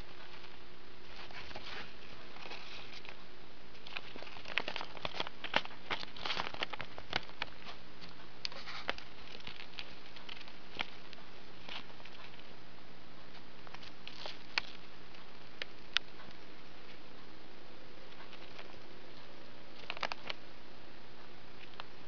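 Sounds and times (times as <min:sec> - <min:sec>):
paper crinkling: 0:00.0 - 0:03.2, 0:03.8 - 0:12.5, 0:13.6 - 0:15.8
rodent feet patters: 0:00.0 - 0:12.6, 0:13.2 - 0:17.4, 0:18.0 - 0:20.5.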